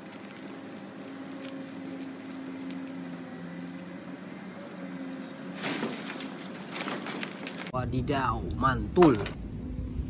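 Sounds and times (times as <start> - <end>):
excavator diesel engine running: 0.0 - 7.7.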